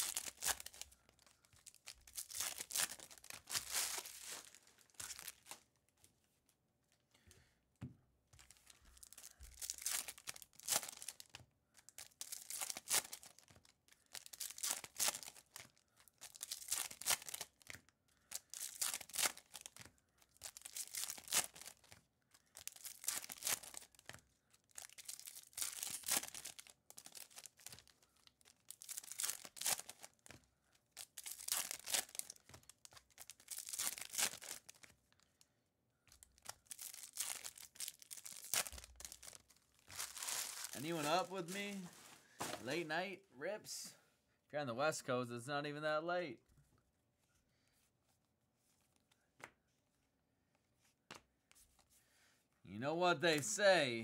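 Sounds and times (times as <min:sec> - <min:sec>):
foil wrappers tearing and crinkling: 0:00.0 - 0:05.6, 0:09.0 - 0:24.1, 0:24.7 - 0:30.3, 0:30.9 - 0:34.9, 0:36.2 - 0:42.8.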